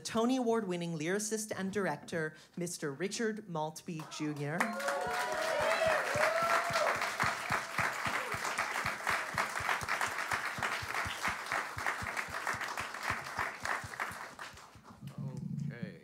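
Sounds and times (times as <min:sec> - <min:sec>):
audience applauding: 0:04.6 - 0:15.0.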